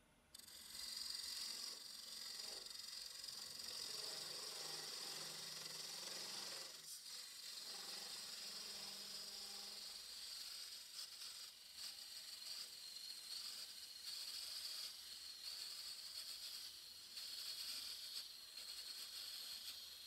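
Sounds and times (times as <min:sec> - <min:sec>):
tool scraping wood: 0:00.4 - 0:12.4
lathe tool hissing on wood: 0:00.4 - 0:20.0.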